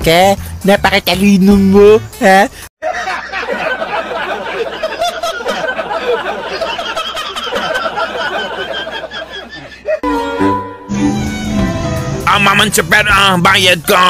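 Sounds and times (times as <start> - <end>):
man laughing hard: 2.8 - 10.0
people laughing and chattering: 2.9 - 10.0.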